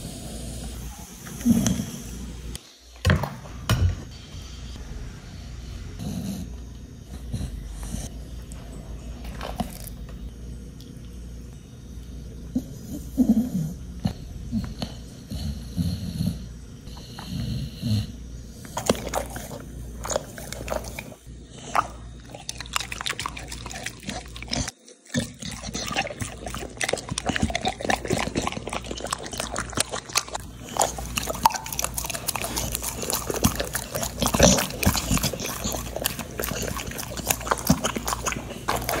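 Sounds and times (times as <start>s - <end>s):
dog crunching biscuit: 22.3s - 39.0s.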